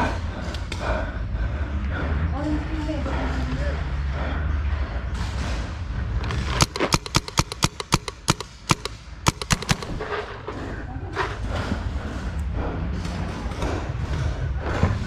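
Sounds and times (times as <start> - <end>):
paintball markers firing: 5.2 - 10.3.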